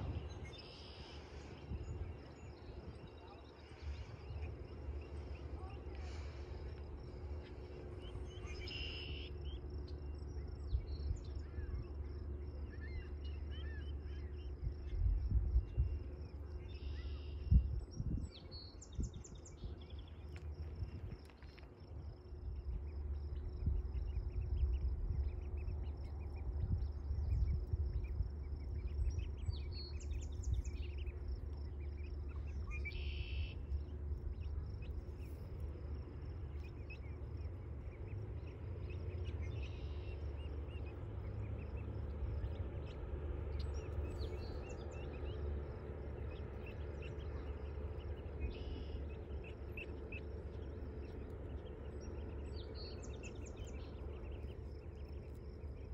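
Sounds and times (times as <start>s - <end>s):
low rumble: 0.0s - 55.9s
short bird chirps: 0.3s - 2.0s, 8.0s - 9.6s, 32.3s - 33.7s.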